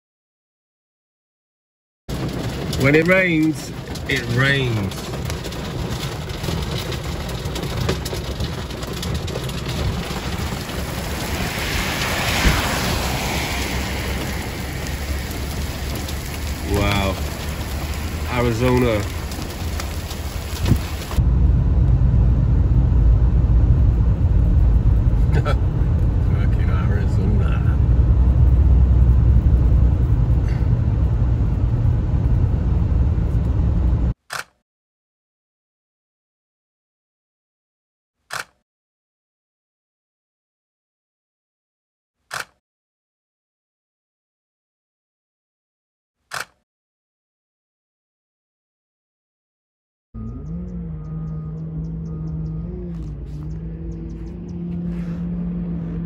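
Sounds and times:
rain on car windshield: 2.1 - 21.2, 24.2 - 34.0
car rumbling on wet road: 2.1 - 34.2, 50.2 - 56.0
thump: 12.4 - 12.8.

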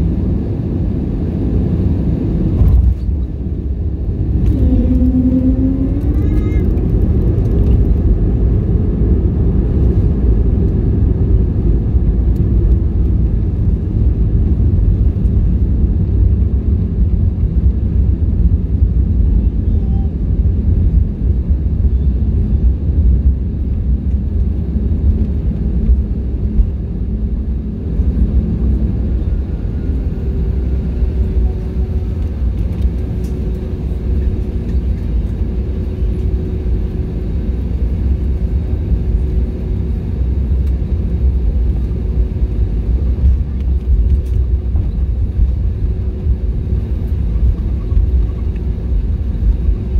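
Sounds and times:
landing gear rumble on runway: 0.0 - 49.9
jet engine tone: 2.6 - 6.9.

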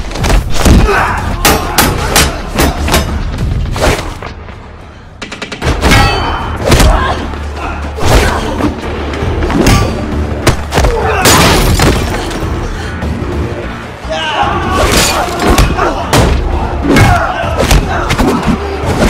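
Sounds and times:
fight blows and body hits: 0.0 - 4.3, 9.4 - 12.3
low music: 0.7 - 19.0.

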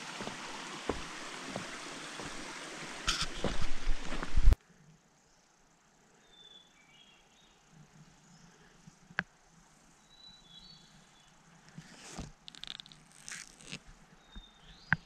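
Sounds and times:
camera rustling and scuffing: 1.6 - 4.6.

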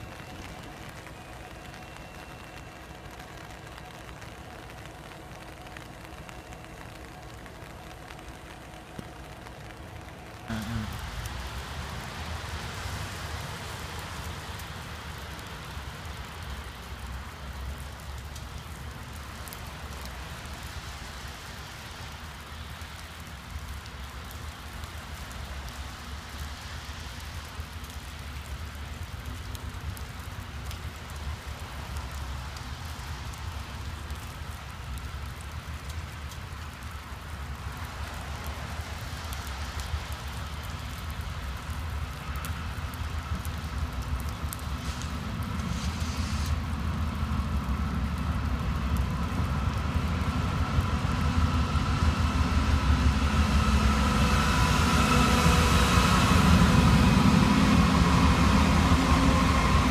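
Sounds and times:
steady rain falling: 0.0 - 59.9
freight train rumble: 44.7 - 59.9.

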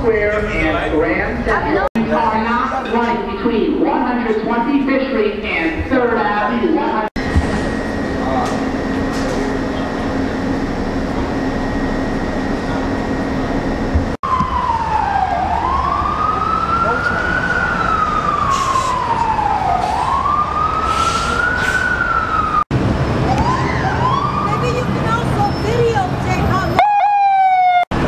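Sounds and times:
station hum: 0.0 - 18.3
emergency vehicle siren wailing: 6.4 - 28.0.

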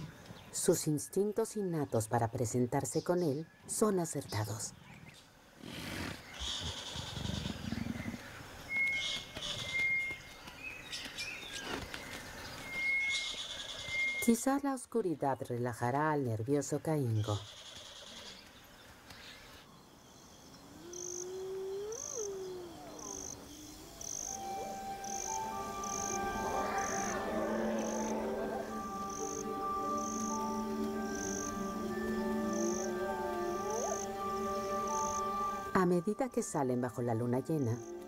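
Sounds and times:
insect calls: 0.0 - 14.6, 17.0 - 38.0
bird calls: 4.3 - 14.3, 17.1 - 35.7
thin steady whistles: 8.7 - 11.3, 12.5 - 14.3, 20.5 - 35.7
cricket chirping: 19.2 - 38.0
soft music with held notes: 24.2 - 38.0.

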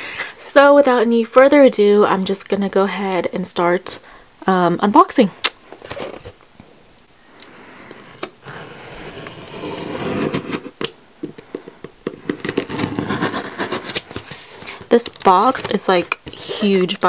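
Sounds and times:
blade and hands tapping cardboard: 9.4 - 14.3.

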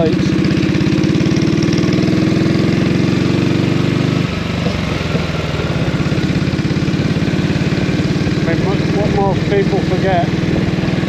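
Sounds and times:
single-cylinder engine running: 0.0 - 11.0.

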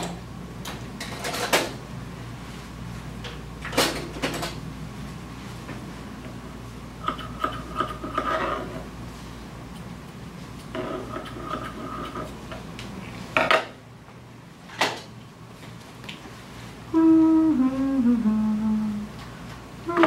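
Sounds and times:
faint low hum: 16.8 - 20.0.

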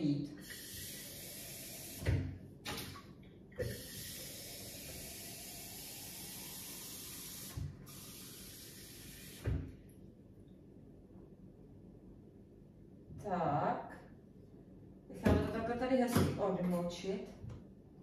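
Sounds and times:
tap water running into sink: 3.6 - 9.7.

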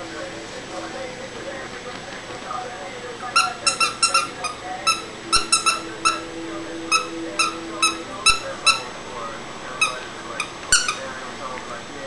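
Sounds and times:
dog chewing toy: 3.4 - 6.2, 9.8 - 11.1
toy squeaker squeaks: 3.4 - 6.2, 6.9 - 8.9, 9.8 - 11.0.

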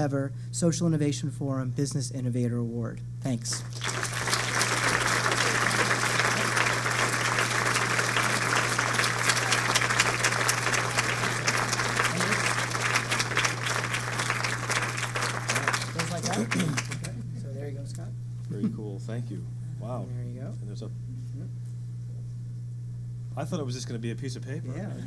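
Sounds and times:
audience applauding: 3.5 - 17.2
low hum: 3.5 - 18.4.

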